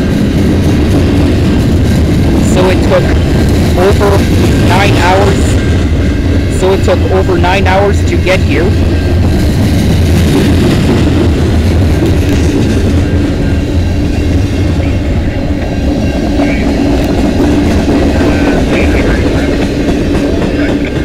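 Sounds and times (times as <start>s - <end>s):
steel wheels rumbling on rail: 0.0s - 21.0s
clickety-clack over rail joints: 8.7s - 13.6s, 15.5s - 21.0s.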